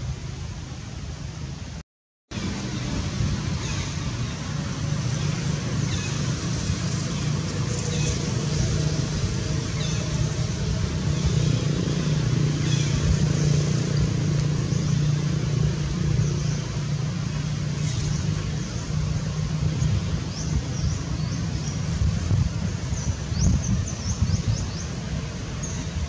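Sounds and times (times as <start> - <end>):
low motor hum: 2.3 - 26.0.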